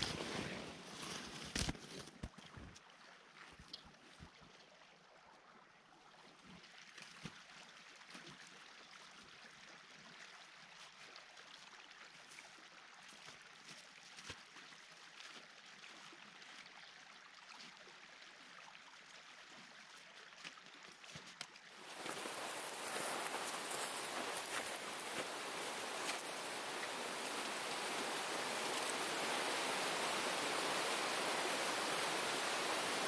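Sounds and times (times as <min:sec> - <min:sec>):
faint outdoor hiss: 0:21.8 - 0:33.0.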